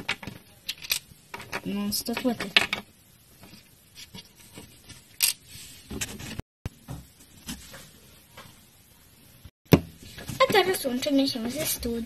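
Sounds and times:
handling noise of toy figures: 0.0s - 6.4s.

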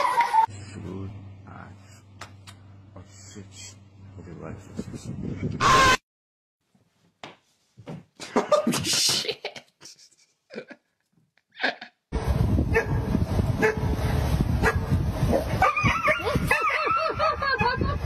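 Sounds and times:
outdoor noise: 12.1s - 18.0s
dog barking and yelping: 15.4s - 17.2s.

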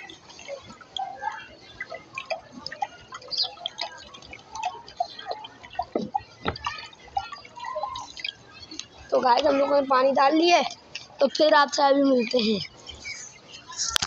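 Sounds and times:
water pouring into a bowl: 0.0s - 9.1s
water plops: 0.0s - 9.5s.

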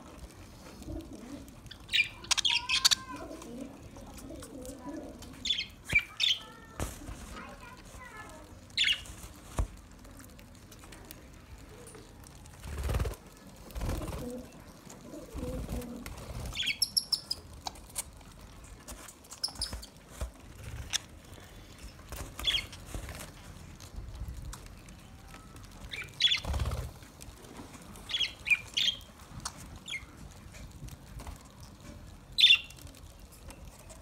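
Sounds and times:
beaks pecking at seed: 0.1s - 34.0s
wing flutters: 11.8s - 17.5s, 25.4s - 31.5s.

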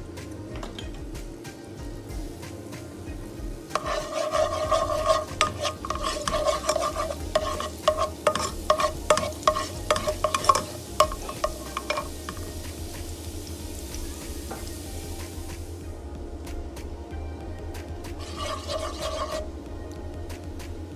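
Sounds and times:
garlic sizzling in oil: 0.0s - 17.0s, 17.7s - 20.9s
spatula scraping a pan: 3.7s - 12.5s, 18.2s - 19.6s
spatula clicking against pan: 3.8s - 12.4s.

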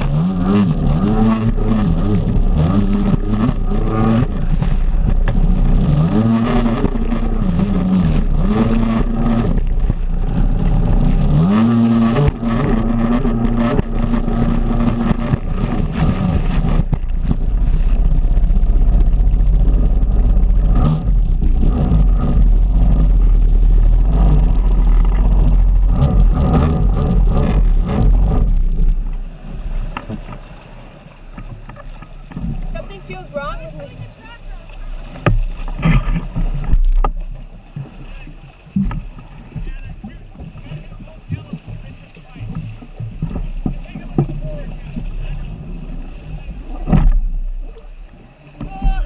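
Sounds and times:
wind on microphone: 0.0s - 30.5s
jet ski engine running hard: 0.0s - 49.0s.

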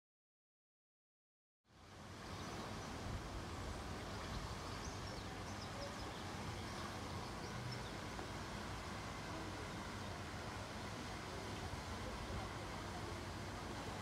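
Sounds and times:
distant traffic hum: 1.7s - 14.0s
faint bird chirps: 4.2s - 8.0s.

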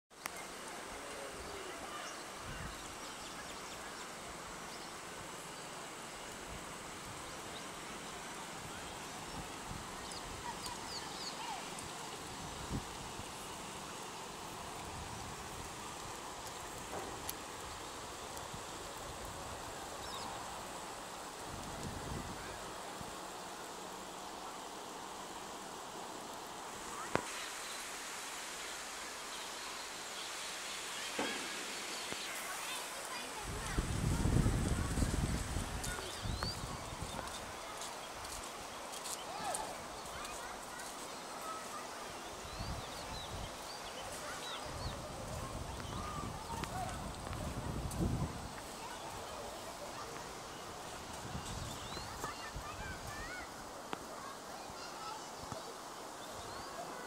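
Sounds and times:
outdoor background hiss: 0.1s - 57.0s.

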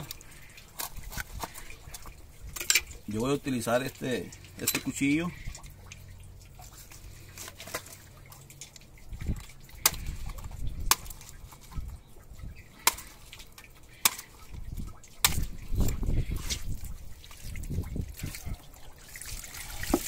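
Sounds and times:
cleaver chopping fish head: 9.8s - 11.2s, 12.8s - 13.2s, 14.0s - 14.3s, 15.2s - 16.0s.

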